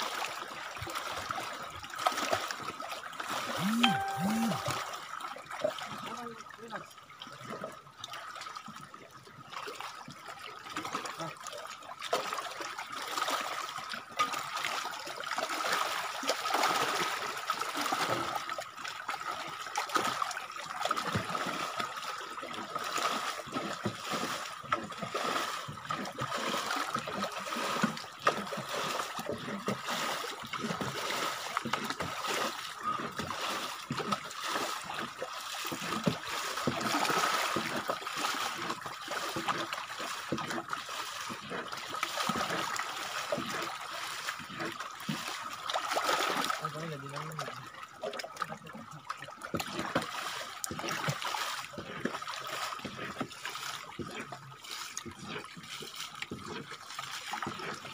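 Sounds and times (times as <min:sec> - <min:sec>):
water splashing as canoe is bailed: 0:12.0 - 0:57.9.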